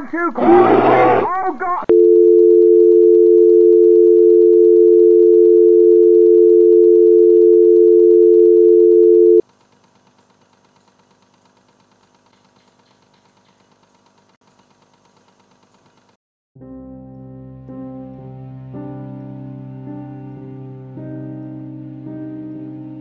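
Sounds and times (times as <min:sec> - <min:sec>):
telephone dial tone: 0:01.9 - 0:09.4.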